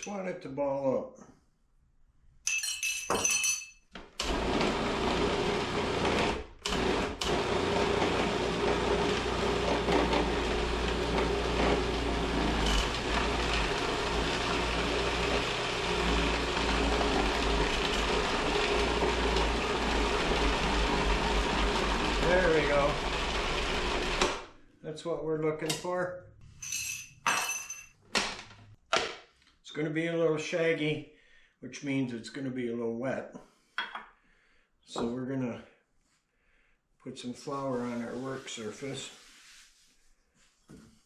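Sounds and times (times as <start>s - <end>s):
spoon clinking against glass: 2.5s - 3.8s
food processor motor running: 4.2s - 24.5s.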